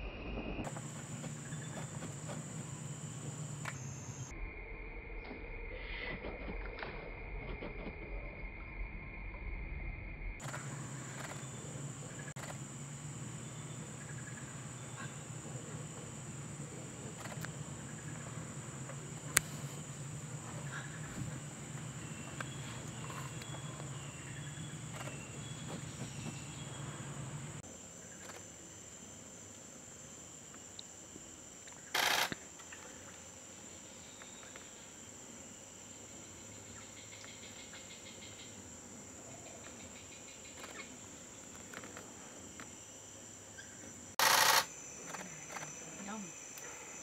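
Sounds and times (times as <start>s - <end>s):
low hum: 0.0s - 29.9s
insects buzzing: 0.6s - 5.5s, 10.4s - 47.0s.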